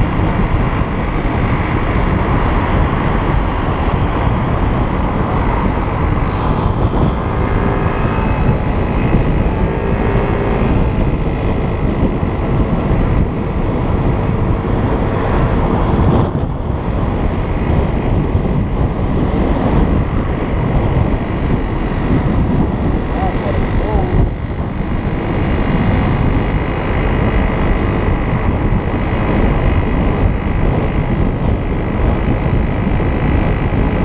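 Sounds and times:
moped engine running: 0.0s - 34.0s
wind buffeting microphone: 0.0s - 34.0s.

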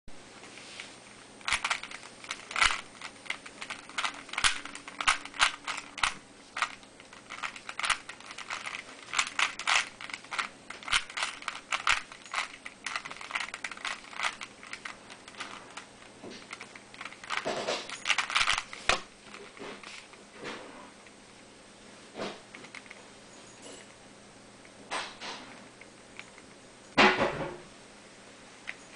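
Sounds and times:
plastic puzzle cube clicking: 1.5s - 15.5s, 16.5s - 19.4s.

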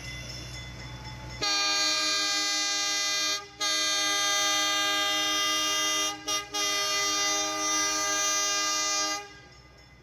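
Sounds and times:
train horn blasts: 1.4s - 9.6s.

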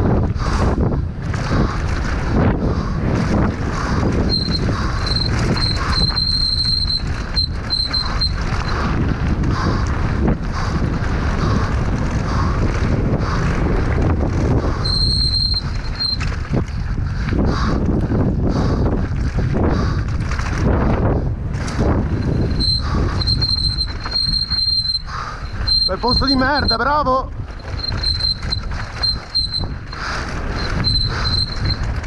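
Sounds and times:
bike tyres rumbling over stones: 0.0s - 32.0s
wind buffeting microphone: 0.0s - 32.0s
high thin brake squeal: 4.3s - 8.8s, 14.8s - 16.2s, 22.2s - 27.0s, 27.6s - 31.9s.

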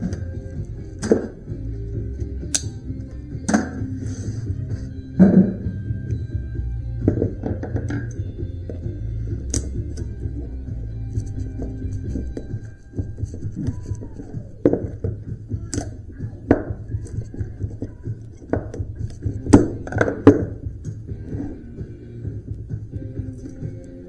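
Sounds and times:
quiet background music: 0.0s - 24.0s
metallic clanks and knocks: 7.0s - 8.9s.

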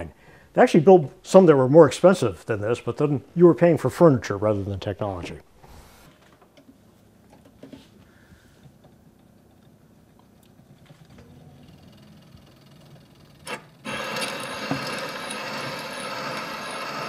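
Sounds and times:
record surface hiss: 0.0s - 17.0s.

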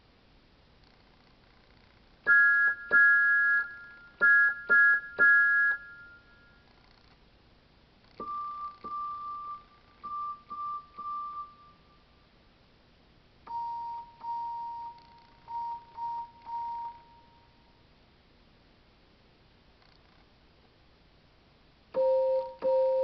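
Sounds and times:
electronic keyboard whistle toots: 2.3s - 6.2s.

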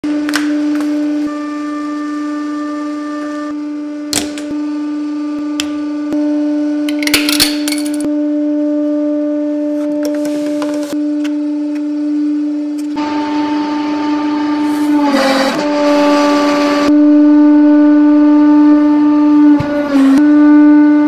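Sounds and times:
items snapping and cracking: 6.9s - 8.0s.

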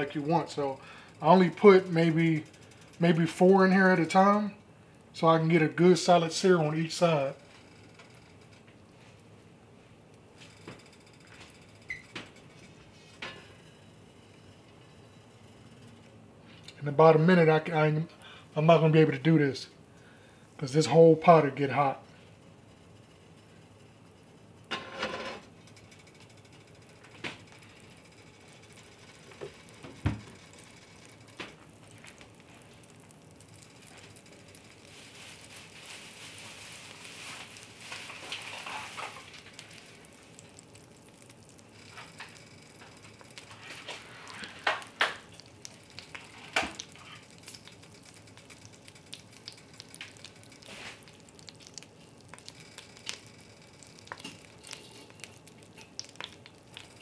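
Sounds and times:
butter sizzling in a pot: 25.9s - 57.0s
sharp pops and crackles: 27.1s - 57.0s.

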